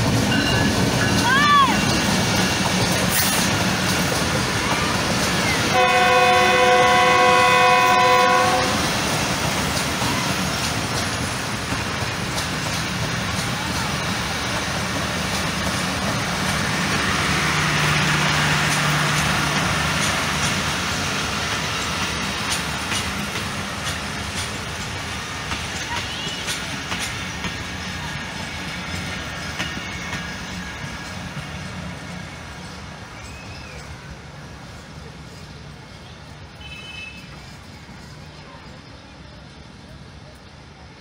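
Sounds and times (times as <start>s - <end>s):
train wheels clattering over rails: 0.0s - 33.8s
train horn: 5.7s - 9.0s, 36.6s - 37.3s.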